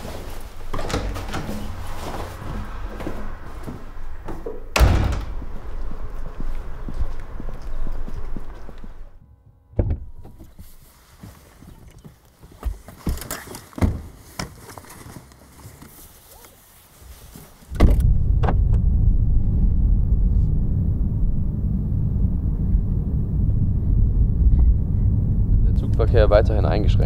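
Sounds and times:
car engine running: 0:18.0 - 0:27.0.

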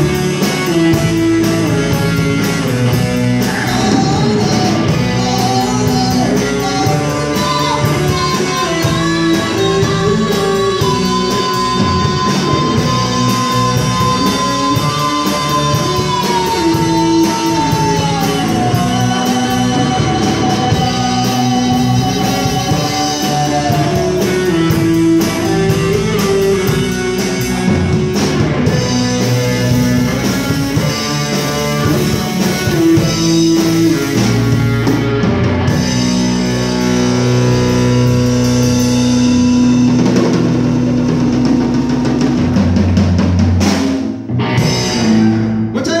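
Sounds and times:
drum kit with cymbals: 0:00.0 - 0:46.0
electric guitar: 0:00.0 - 0:46.0.

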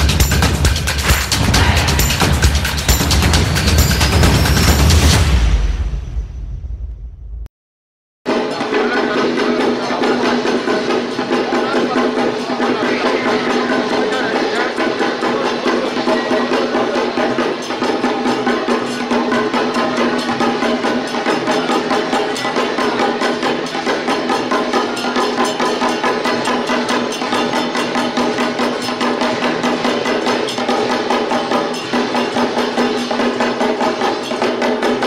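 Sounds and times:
fast percussion beat: 0:00.0 - 0:06.4, 0:08.3 - 0:35.0.

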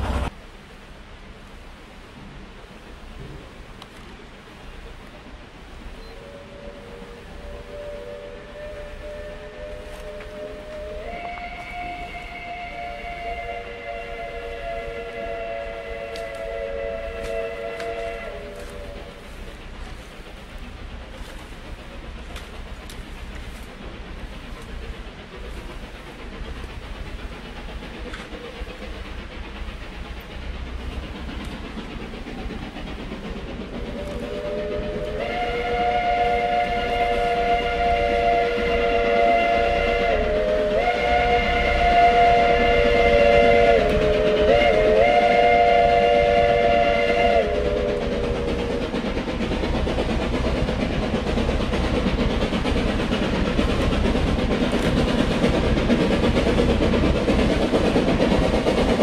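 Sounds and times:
steam locomotive running: 0:00.0 - 0:59.0
steam locomotive whistle: 0:06.0 - 0:19.4, 0:33.8 - 0:48.8.

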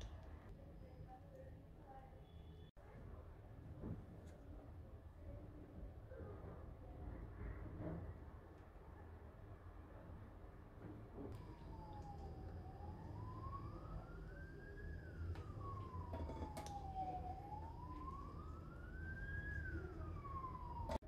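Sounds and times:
siren wailing: 0:11.3 - 0:21.0
steady low hum: 0:11.4 - 0:21.0.

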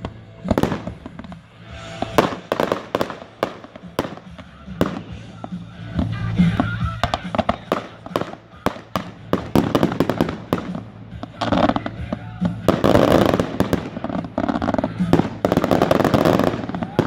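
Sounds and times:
fireworks crackling hiss: 0:00.0 - 0:17.0
fireworks pops and bangs: 0:00.0 - 0:17.0.

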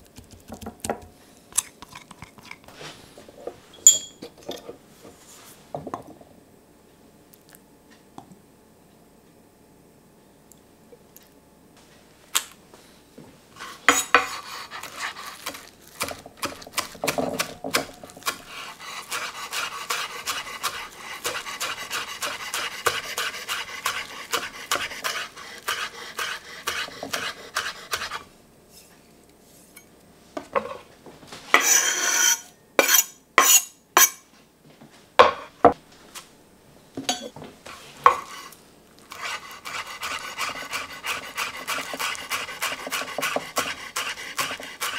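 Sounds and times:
knife chopping on wooden board: 0:14.2 - 0:18.5, 0:39.2 - 0:44.9.

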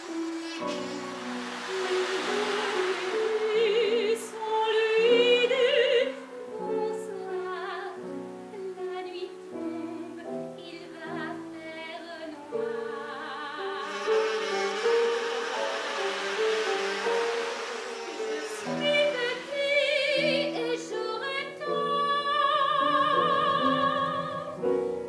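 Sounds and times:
instrumental accompaniment: 0:00.0 - 0:07.3, 0:12.3 - 0:25.0
woman singing operatically: 0:01.7 - 0:14.1, 0:18.2 - 0:24.7.

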